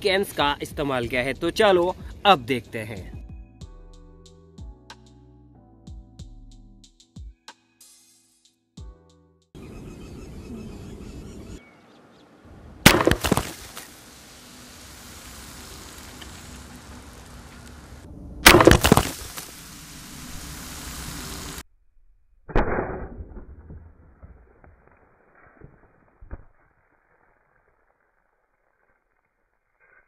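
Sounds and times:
air rifle sharp crack: 0:12.9 - 0:13.9, 0:18.4 - 0:19.6, 0:22.5 - 0:23.5
cans bursting: 0:12.9 - 0:14.0, 0:18.4 - 0:19.6.

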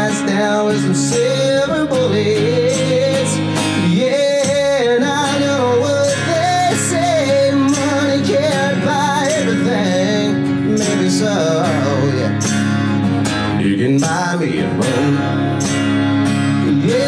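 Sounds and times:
person singing: 0:00.0 - 0:12.5, 0:13.5 - 0:15.8, 0:16.5 - 0:17.0
acoustic guitar strumming: 0:00.0 - 0:17.0.

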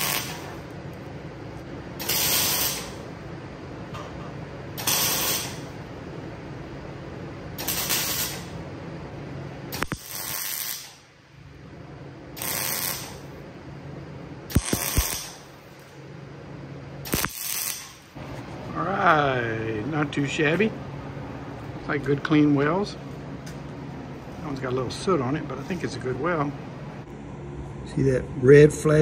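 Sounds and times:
electric arc welding: 0:00.0 - 0:00.8, 0:02.0 - 0:03.1, 0:04.8 - 0:05.8, 0:07.6 - 0:08.6, 0:09.7 - 0:11.1, 0:12.3 - 0:13.4, 0:14.5 - 0:15.9, 0:17.0 - 0:18.2
steady low hum: 0:00.0 - 0:29.0.

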